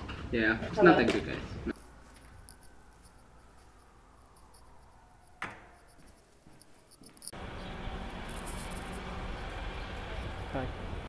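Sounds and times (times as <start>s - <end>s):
door shutting: 5.4s - 5.9s
outdoor noise rush: 6.0s - 11.0s.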